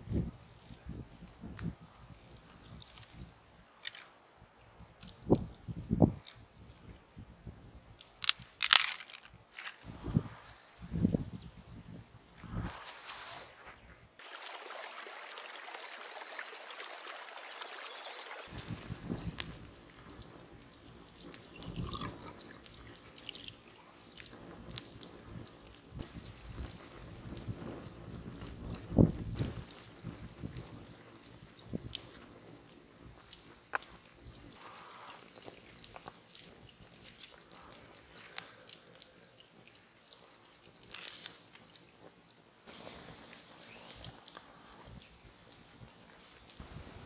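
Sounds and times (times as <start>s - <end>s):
campfire crackling and popping: 18.4s - 47.0s.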